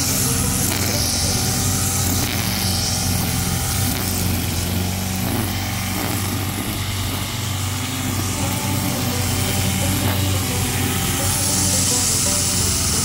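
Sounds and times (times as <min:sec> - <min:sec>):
brush cutter engine running: 0:00.0 - 0:13.0.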